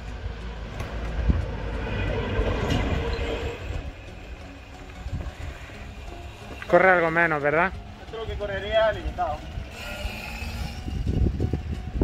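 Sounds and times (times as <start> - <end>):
electric quad motor whine: 9.4 - 12.0.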